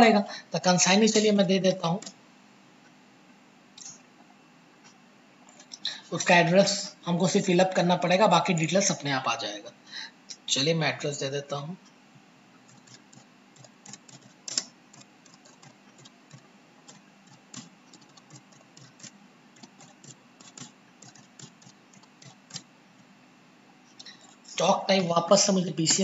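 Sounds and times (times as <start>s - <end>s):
computer keyboard typing: 1.1s - 2.2s, 12.7s - 23.1s.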